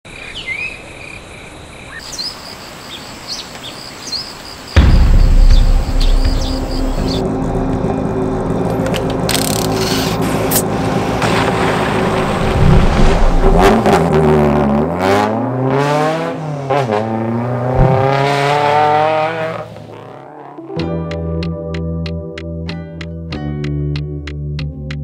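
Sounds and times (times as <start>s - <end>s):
rally car engine revving: 6.0s - 20.6s.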